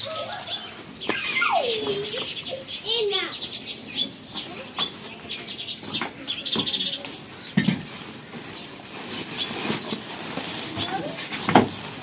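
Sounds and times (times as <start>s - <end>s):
small birds chirping: 0.0s - 11.9s
plastic sack rustling: 7.2s - 12.0s.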